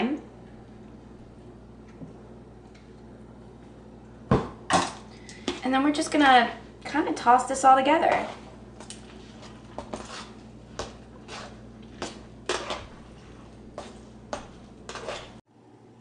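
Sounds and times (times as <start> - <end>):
utensil scraping metal bowl: 8.0 - 15.4.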